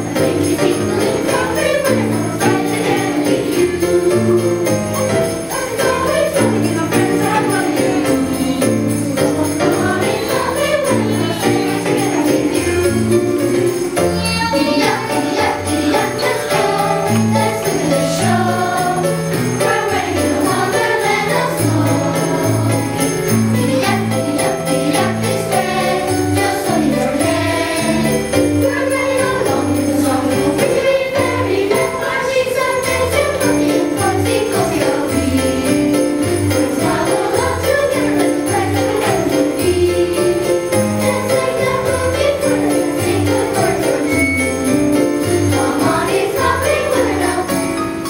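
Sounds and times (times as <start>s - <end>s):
children's choir singing: 0.0s - 48.0s
jingle bells shaken: 0.0s - 48.0s.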